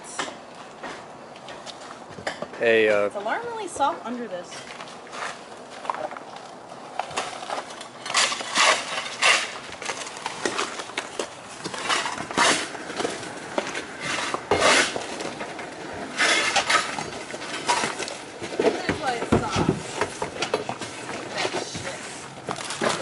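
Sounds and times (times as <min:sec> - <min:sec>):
roof covering scraping and tearing: 0:07.1 - 0:23.0.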